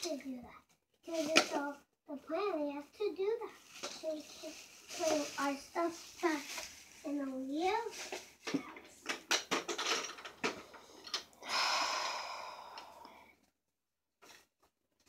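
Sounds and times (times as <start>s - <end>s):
plastic bag crinkling and rustling: 1.0s - 1.8s, 2.8s - 10.7s
plastic toys clicking and knocking: 1.1s - 1.7s, 7.7s - 11.4s.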